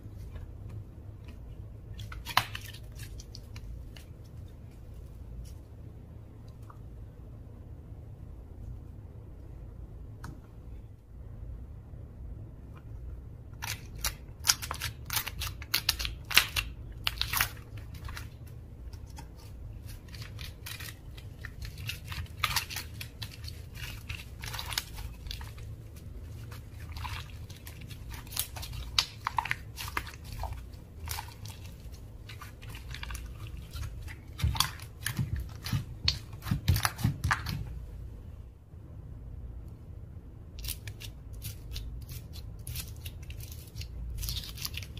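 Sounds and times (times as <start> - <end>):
slime kneaded by hand: 0.0 - 7.0, 13.5 - 38.3
wet crackles and pops: 19.0 - 37.7.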